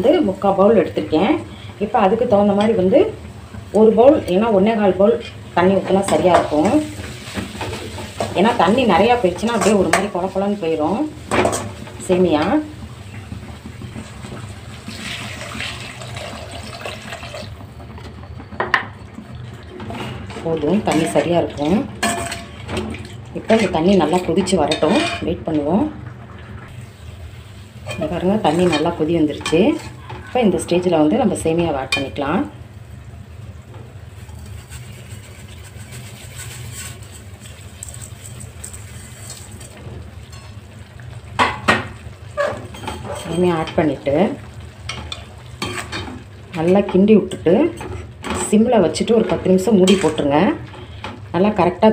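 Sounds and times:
water boiling in a pan: 0.0s - 51.9s
water pouring into a pan: 14.5s - 17.6s, 34.4s - 39.8s.

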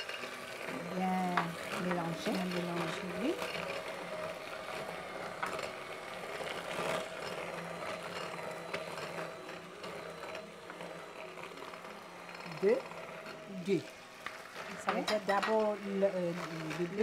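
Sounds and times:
electric hand mixer running: 0.0s - 17.0s.

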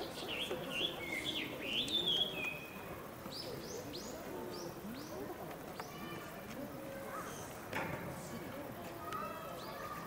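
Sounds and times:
birds whistling: 0.2s - 2.7s.

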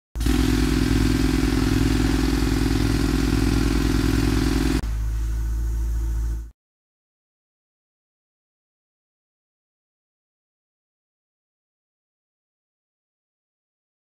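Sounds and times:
power drill whirring: 0.2s - 4.8s
low hum: 0.2s - 6.5s.

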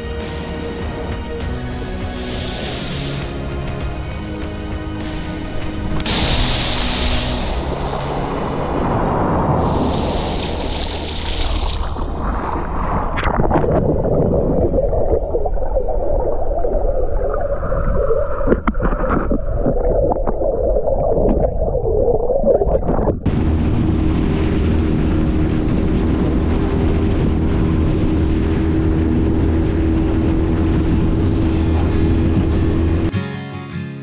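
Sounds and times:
outboard motor drone: 0.0s - 13.6s, 23.2s - 33.1s
wind: 0.0s - 21.6s, 22.9s - 33.1s
rushing water: 0.0s - 33.1s
muffled underwater sound: 8.8s - 26.1s, 28.6s - 33.1s.

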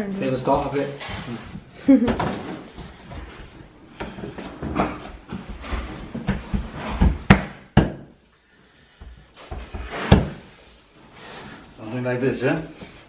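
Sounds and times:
floor planks knocking together: 4.0s - 8.1s.

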